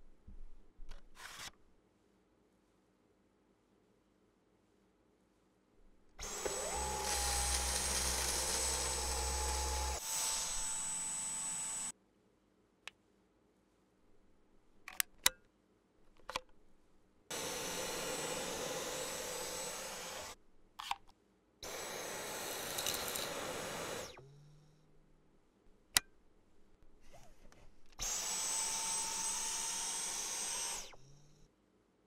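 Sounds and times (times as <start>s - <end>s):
cordless vacuum running: 6.2s - 11.9s, 17.3s - 20.4s, 21.6s - 24.3s, 28.0s - 31.1s.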